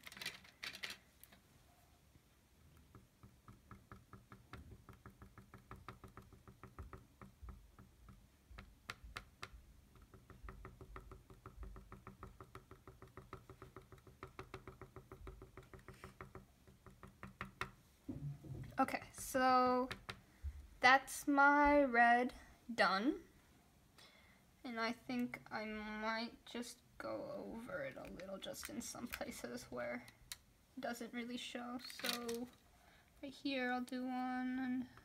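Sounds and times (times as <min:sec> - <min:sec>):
cotton swab tapping canvas: 0:02.7 - 0:18.2, 0:19.1 - 0:20.2.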